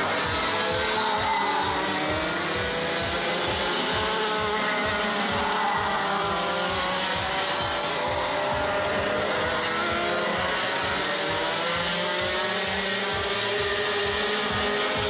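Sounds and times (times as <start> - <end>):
go-kart engines revving: 0.0 - 15.0.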